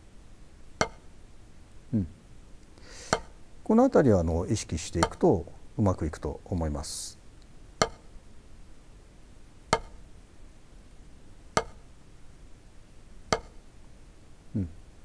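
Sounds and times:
drumstick hitting practice pad: 0.8 - 1.1, 3.0 - 3.4, 5.0 - 5.3, 7.8 - 8.2, 9.7 - 10.0, 11.6 - 11.9, 13.3 - 13.6.

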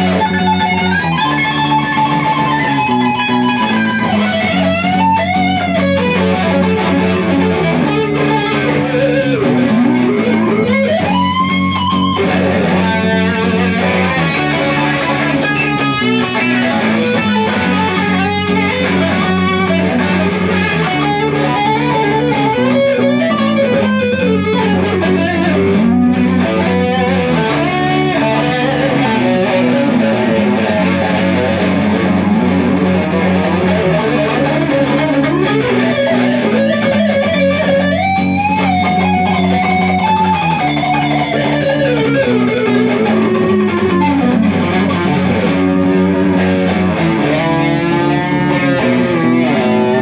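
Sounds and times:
electric guitar solo: 0.0 - 50.0
steady low notes: 0.0 - 50.0.

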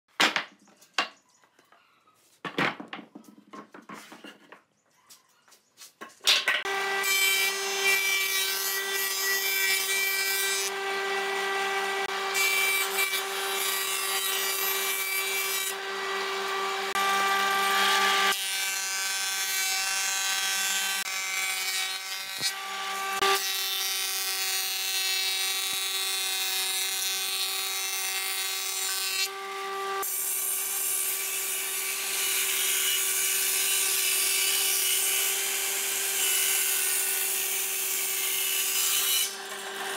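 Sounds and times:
wood rasping being cut: 6.6 - 19.8
woodworking machine whine: 6.7 - 7.9, 10.6 - 18.4, 39.3 - 39.9.

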